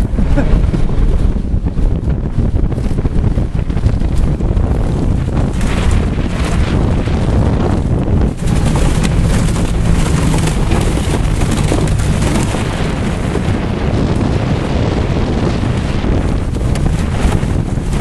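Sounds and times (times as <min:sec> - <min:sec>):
wind buffeting microphone: 0:00.0 - 0:18.0
car engine running: 0:05.5 - 0:13.6.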